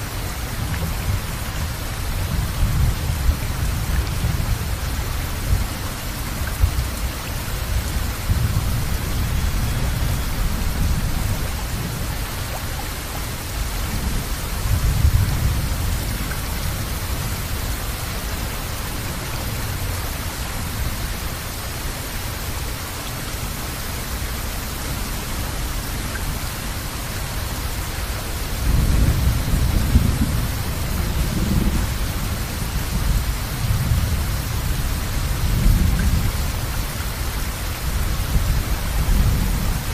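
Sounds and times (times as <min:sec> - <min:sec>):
rain hissing: 0:00.0 - 0:39.9
rolling thunder: 0:28.6 - 0:36.7.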